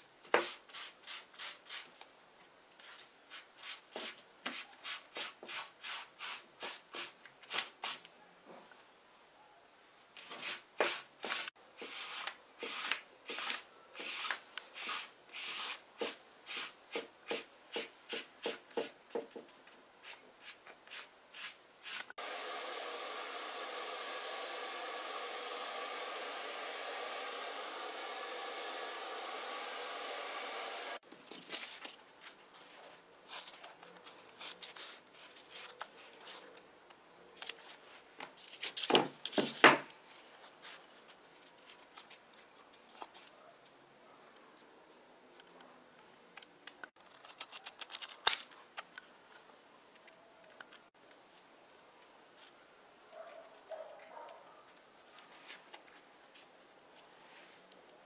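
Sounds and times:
rustling and handling noises: 0:00.2 - 0:08.9, 0:31.0 - 0:58.0
air tool blowing: 0:22.2 - 0:31.0.

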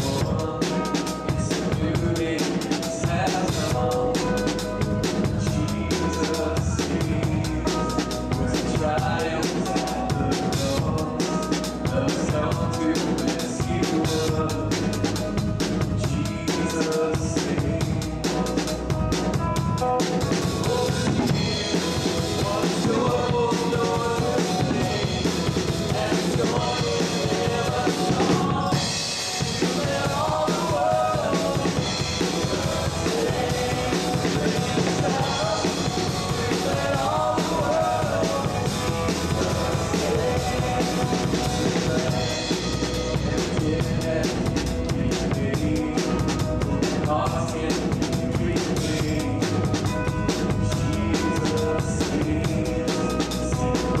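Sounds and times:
drum kit beat: 0:00.0 - 0:54.0
electric bass guitar: 0:00.0 - 0:54.0
live band music: 0:00.0 - 0:54.0.

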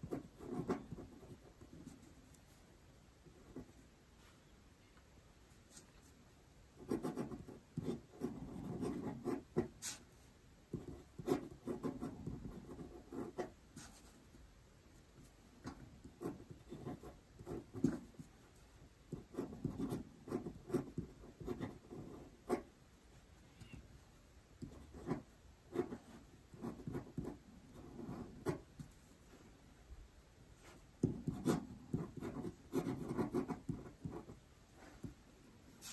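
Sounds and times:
pen scratching on paper: 0:00.0 - 0:02.2, 0:06.8 - 0:10.1, 0:10.7 - 0:14.3, 0:15.2 - 0:18.5, 0:19.1 - 0:22.7, 0:24.6 - 0:29.0, 0:30.6 - 0:35.2.

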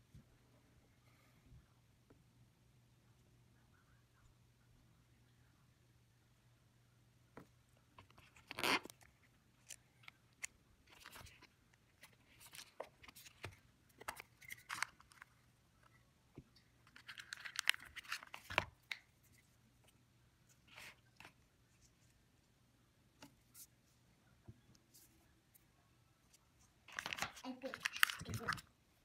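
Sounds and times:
cardboard and plastic crinkling: 0:26.9 - 0:28.6
packaging clicks and taps: 0:26.9 - 0:28.6.

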